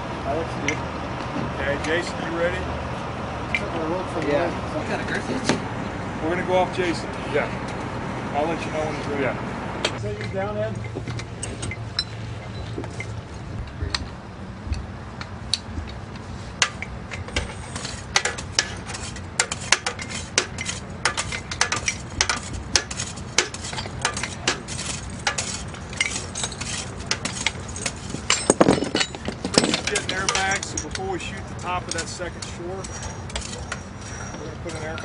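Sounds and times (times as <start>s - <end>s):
metal gear clinking: 17.2s - 35.0s.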